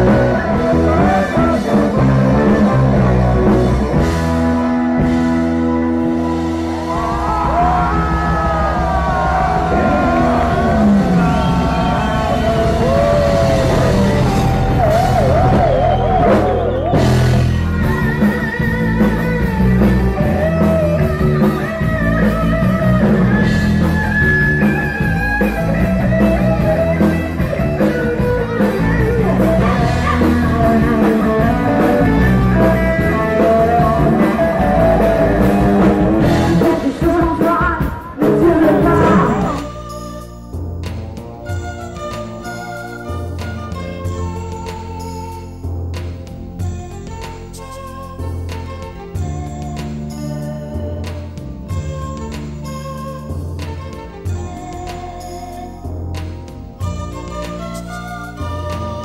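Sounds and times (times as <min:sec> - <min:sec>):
person singing: 0:00.0 - 0:04.0, 0:26.2 - 0:39.9
live rock band playing: 0:00.0 - 0:59.0.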